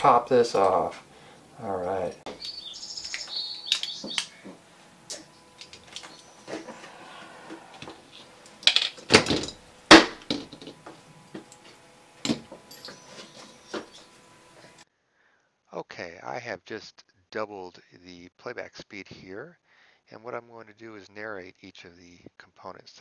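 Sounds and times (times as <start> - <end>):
small parts clicking and knocking: 2.4 - 6.2, 7.8 - 13.0
short high squeaks: 12.6 - 14.1.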